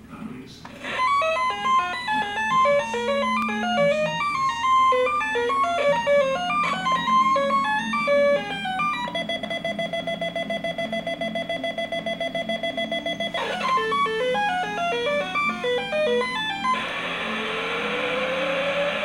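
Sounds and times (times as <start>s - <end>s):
toy beeping melody: 0.8s - 17.1s
fast-pulsing alarm tone: 0.8s - 19.0s.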